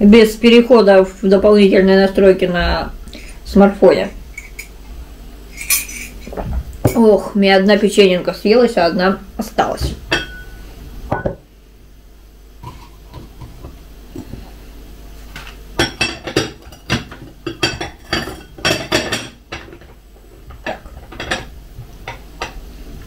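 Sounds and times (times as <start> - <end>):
spoon clinking against mug: 5.6 - 6.2.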